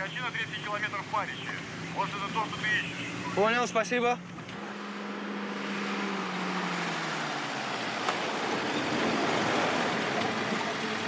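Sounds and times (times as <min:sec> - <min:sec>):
jeep engine running: 0:00.0 - 0:11.0.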